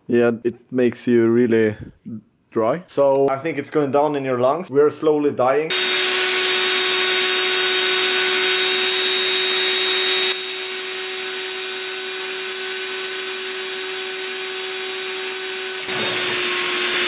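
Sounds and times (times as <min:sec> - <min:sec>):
electric air blower humming: 0:05.7 - 0:17.0.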